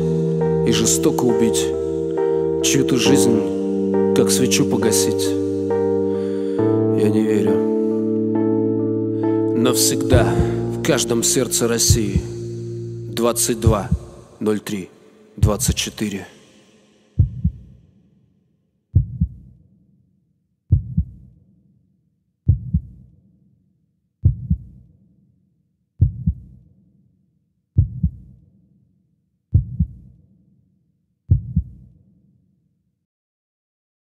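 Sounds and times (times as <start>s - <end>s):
heartbeat thumps: 11.9s - 12.4s, 13.6s - 14.2s, 15.4s - 15.9s, 17.2s - 17.7s, 19.0s - 19.4s, 20.7s - 21.2s, 22.5s - 23.0s, 24.2s - 24.7s, 26.0s - 26.5s, 27.8s - 28.2s, 29.6s - 30.0s, 31.3s - 31.8s.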